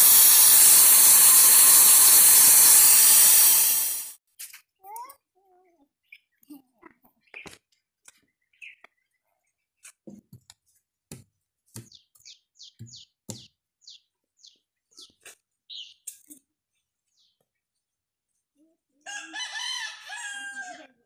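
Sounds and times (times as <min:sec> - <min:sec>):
bird chirping: 0:06.0 - 0:10.0, 0:11.8 - 0:16.3.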